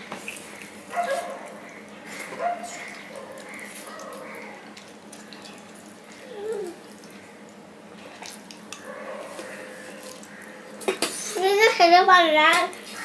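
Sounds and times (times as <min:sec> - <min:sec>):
chewing: 0:02.2 - 0:10.9.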